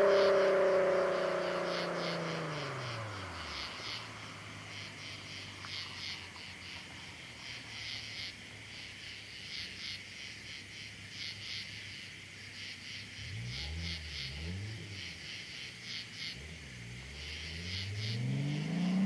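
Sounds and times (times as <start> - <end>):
car engine idling and revving: 0.0 - 19.0
crickets chirping: 0.0 - 19.0.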